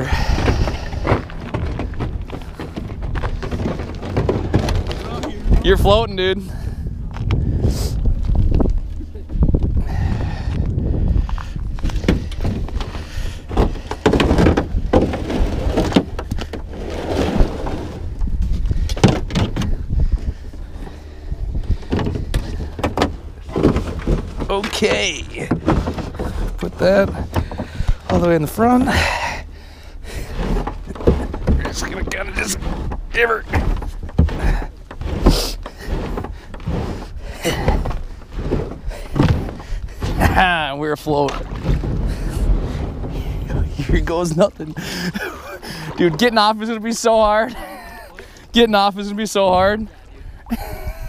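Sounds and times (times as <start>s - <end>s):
knocks and crunches: 0.0s - 6.4s, 7.1s - 46.4s
plastic kayak scraping over snow: 11.9s - 18.9s, 19.9s - 49.9s.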